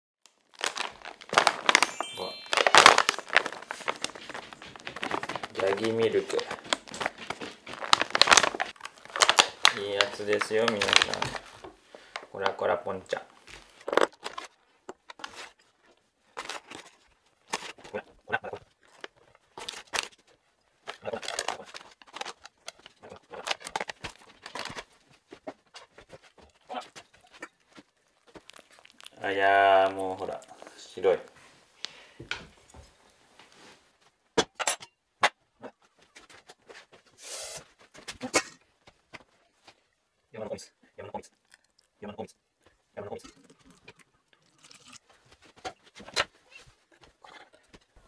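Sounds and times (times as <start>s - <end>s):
foil pouch crinkling: 0.3s - 12.2s, 13.4s - 15.6s, 18.8s - 31.4s.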